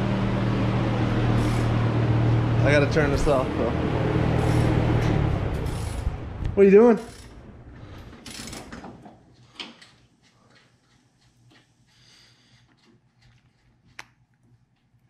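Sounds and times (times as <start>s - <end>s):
steady noise: 0.0s - 8.7s.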